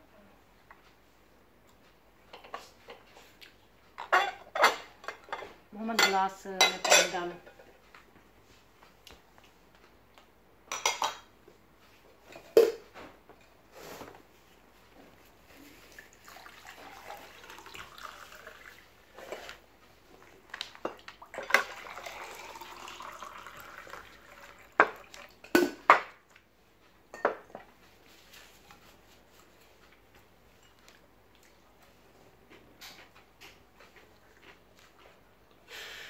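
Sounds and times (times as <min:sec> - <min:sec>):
plates and dishes clinking: 0:04.0 - 0:07.8, 0:10.7 - 0:11.3, 0:27.1 - 0:27.7
water pouring into a glass: 0:15.9 - 0:19.3, 0:21.2 - 0:25.4.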